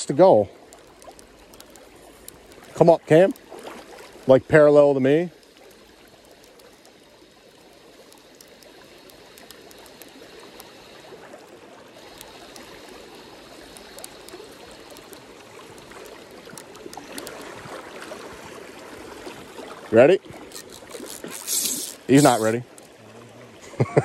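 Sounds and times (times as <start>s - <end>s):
river water rushing: 0.0s - 23.6s
light ticks: 0.5s - 17.8s.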